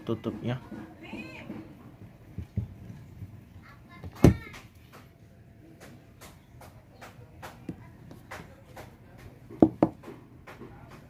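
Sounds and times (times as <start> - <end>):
knocks on wooden tabletop: 9.5 - 10.6.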